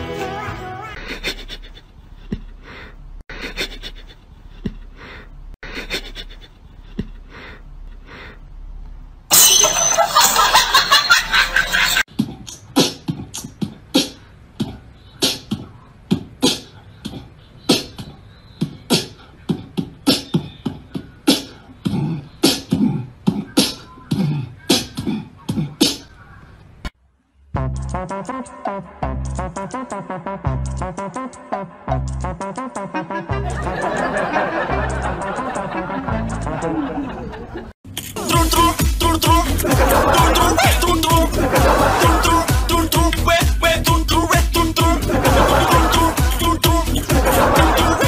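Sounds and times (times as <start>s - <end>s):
rhythmic percussive beatbox hits: 12.1s - 26.1s, 29.1s - 32.8s, 38.2s - 48.0s.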